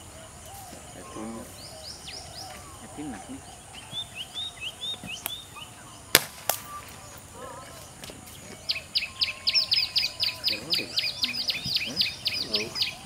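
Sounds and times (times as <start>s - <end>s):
birds chirping: 0.0s - 13.0s
repeated bird calls: 0.0s - 13.0s
dart rifle shot: 6.1s - 6.8s.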